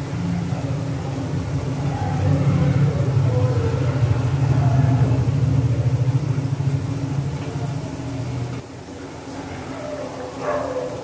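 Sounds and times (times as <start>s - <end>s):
loud low rumble: 0.0s - 8.6s.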